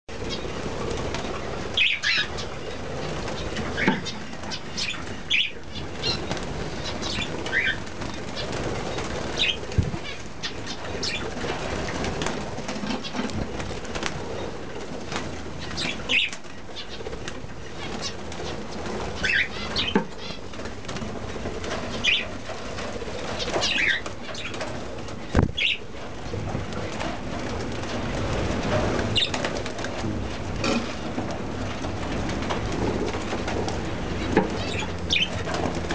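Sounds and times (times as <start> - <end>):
birds fluttering wings: 0.1 - 35.9.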